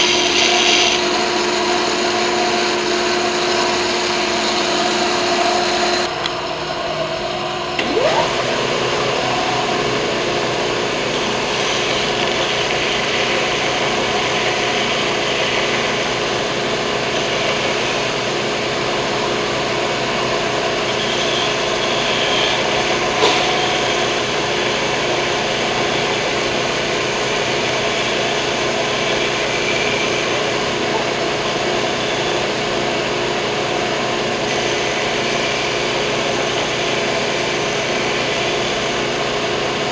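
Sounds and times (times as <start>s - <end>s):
belt sander sanding wood: 0.0s - 6.1s, 7.8s - 19.8s
band saw running: 0.0s - 39.9s.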